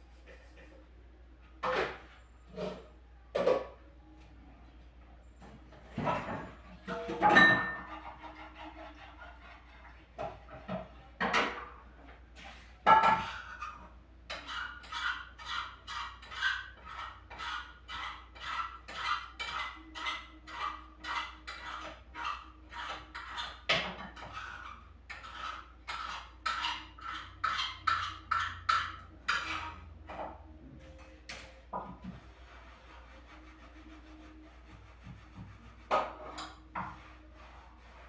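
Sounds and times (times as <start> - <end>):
dishes knocking: 6.0 - 7.9
rhythmic scraping strokes: 12.4 - 38.0.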